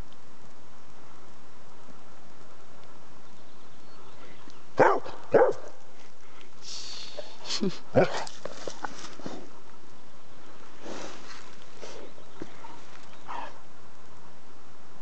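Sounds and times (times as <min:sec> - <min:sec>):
dog barking: 0:04.8 - 0:05.8.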